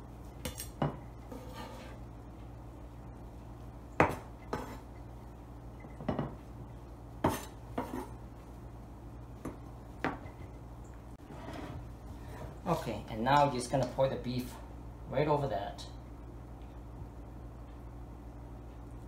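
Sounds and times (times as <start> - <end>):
low hum: 0.0 - 15.2.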